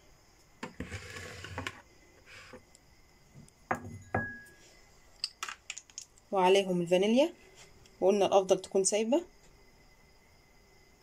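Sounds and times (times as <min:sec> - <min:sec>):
glassware clinking: 0:03.7 - 0:04.6.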